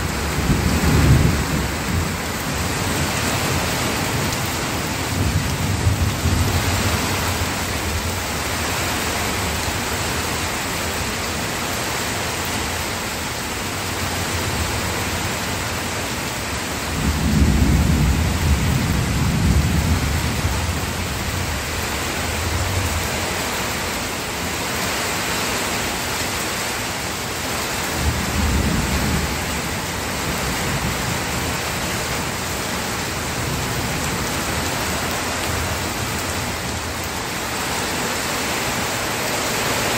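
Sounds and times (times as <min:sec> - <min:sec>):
steady rain: 0:00.0 - 0:39.9
rolling thunder: 0:00.2 - 0:02.4, 0:17.0 - 0:20.8.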